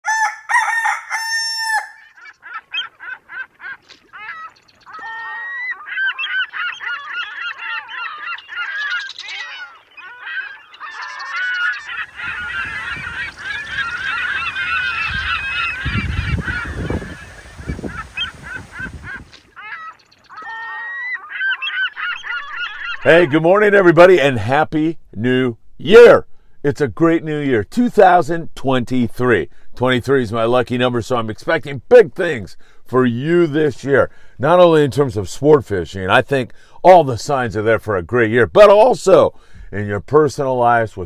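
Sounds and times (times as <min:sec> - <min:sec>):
flock of birds calling: 0:00.1 - 0:23.6.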